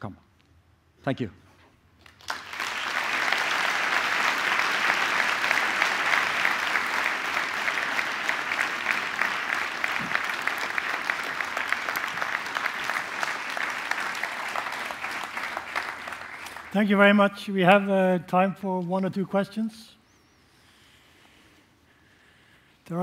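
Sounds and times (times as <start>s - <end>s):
large audience applauding: 2.0s - 17.4s.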